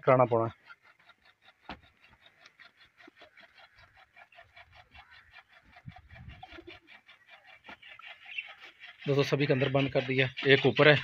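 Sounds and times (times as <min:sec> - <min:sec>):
birds chirping rapidly: 0:00.0 - 0:11.0
footsteps on dirt: 0:01.0 - 0:02.5.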